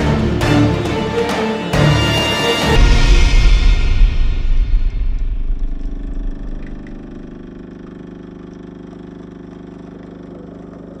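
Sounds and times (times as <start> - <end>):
espresso machine pump humming: 5.8 - 11.0.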